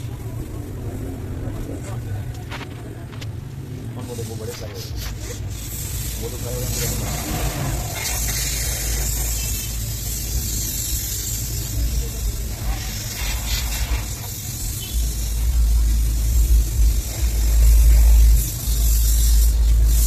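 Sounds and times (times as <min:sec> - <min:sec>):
high sizzle of frying oil: 0:04.0 - 0:20.0
low rumble: 0:11.7 - 0:20.0.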